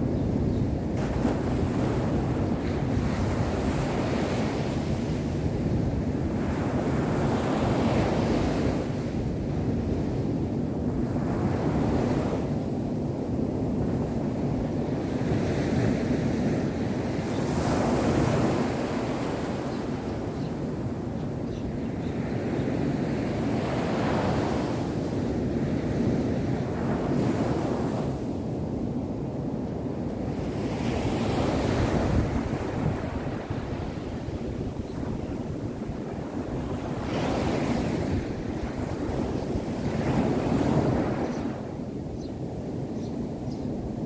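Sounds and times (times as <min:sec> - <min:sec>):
small surf washing up beach: 0:01.0 - 0:05.4.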